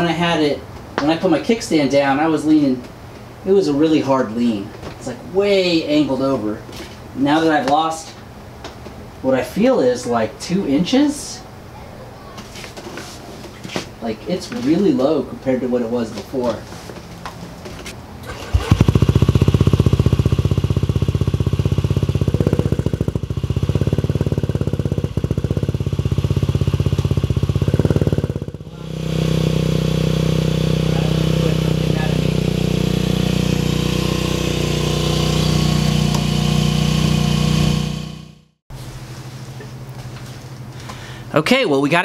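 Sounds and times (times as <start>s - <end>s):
scooter engine idling: 18.2s - 38.4s.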